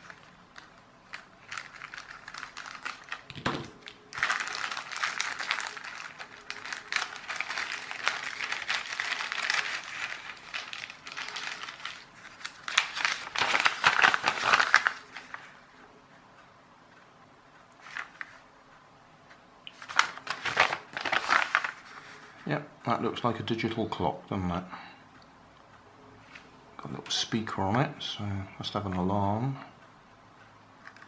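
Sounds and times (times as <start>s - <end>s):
plastic bag crinkling: 0.0s - 15.5s, 19.7s - 22.2s
paper sheet rustling: 0.0s - 15.6s, 17.8s - 18.4s, 19.7s - 22.5s.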